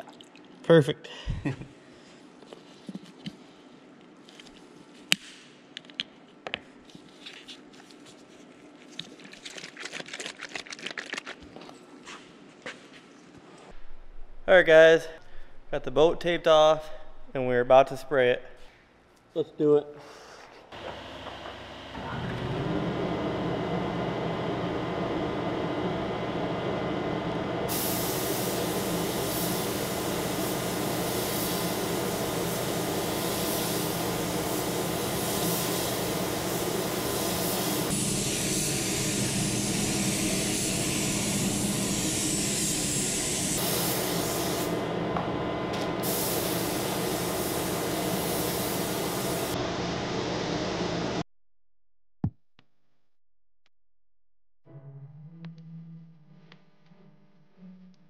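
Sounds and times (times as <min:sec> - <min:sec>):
steady mechanical hum: 0:11.2 - 0:51.2
paint spray gun hissing: 0:27.7 - 0:44.8, 0:46.0 - 0:49.6.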